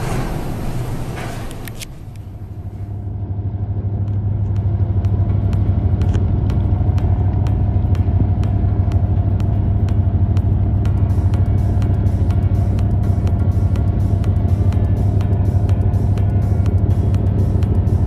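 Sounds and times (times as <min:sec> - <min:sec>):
heavy sea rushing: 0:00.0 - 0:02.7
storm wind: 0:00.0 - 0:04.1
boat engine humming: 0:00.0 - 0:18.0.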